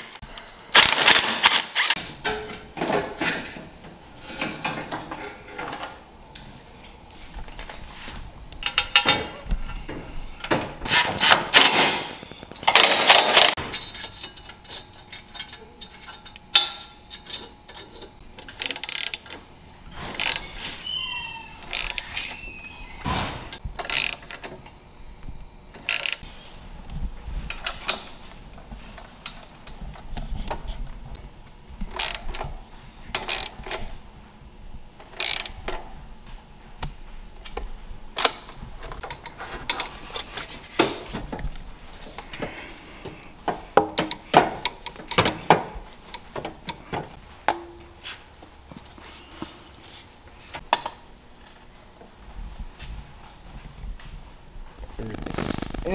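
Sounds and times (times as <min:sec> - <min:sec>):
tools and metal parts clattering: 0:08.6 - 0:19.4
socket ratchet clicking: 0:18.6 - 0:19.2, 0:20.2 - 0:20.4, 0:21.6 - 0:22.2, 0:23.9 - 0:24.3, 0:25.8 - 0:26.2, 0:32.0 - 0:32.2, 0:33.2 - 0:33.6, 0:35.2 - 0:35.6.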